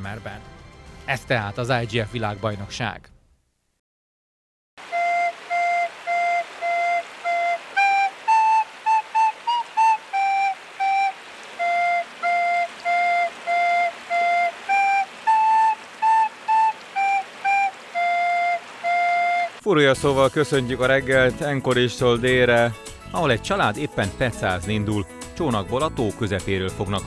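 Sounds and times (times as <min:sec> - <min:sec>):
recorder playing a tune: 0:04.8 - 0:19.6.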